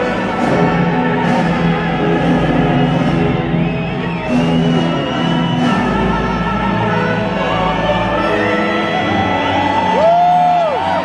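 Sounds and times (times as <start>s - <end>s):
orchestral music: 0.0s - 11.0s
stadium crowd cheering: 0.4s - 7.2s, 9.0s - 11.0s
long rising and falling whoops: 9.4s - 11.0s.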